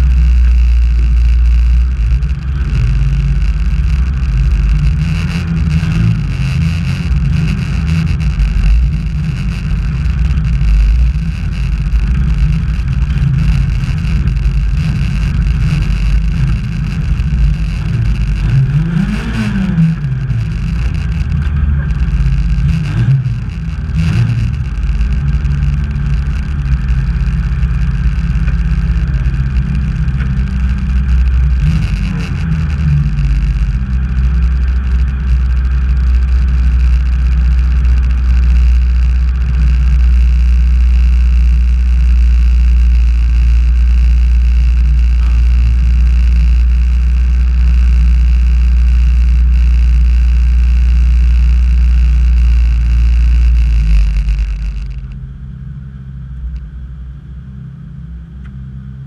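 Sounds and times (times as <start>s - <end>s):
race car engine revving: 0.0s - 56.7s
engine running near idle: 0.0s - 59.0s.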